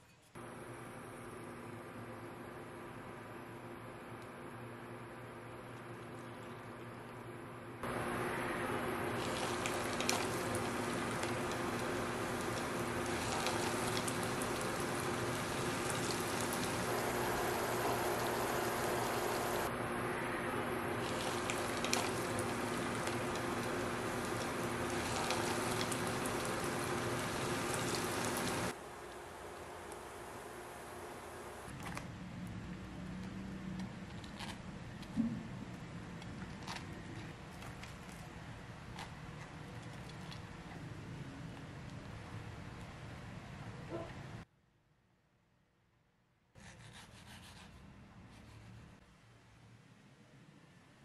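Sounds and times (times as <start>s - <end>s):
deep-frying sizzle with crackles: 7.8s - 31.8s.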